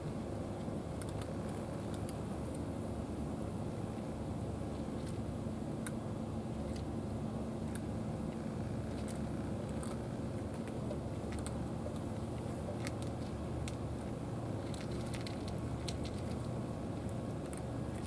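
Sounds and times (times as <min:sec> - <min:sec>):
low background rumble: 0:00.0 - 0:18.0
cat crunching dry kibble: 0:00.6 - 0:02.6, 0:07.6 - 0:18.0.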